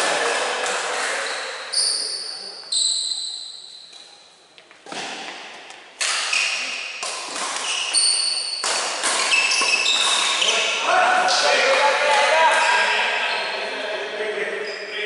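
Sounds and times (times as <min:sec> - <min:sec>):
court shoes squeaking: 0:00.6 - 0:11.9, 0:12.5 - 0:13.7, 0:14.5 - 0:15.0
racket hitting shuttlecock: 0:04.8 - 0:10.4.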